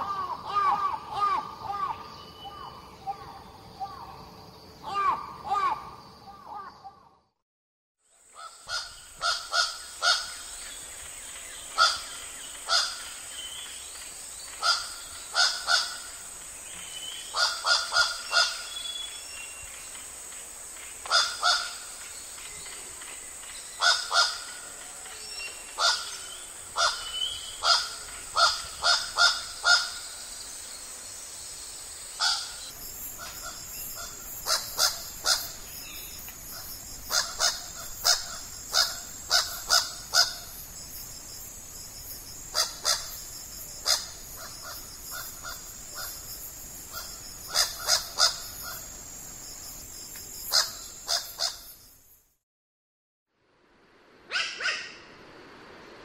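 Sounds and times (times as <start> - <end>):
crow calling harshly: 0.0 - 2.0
high-pitched hiss: 8.3 - 52.4.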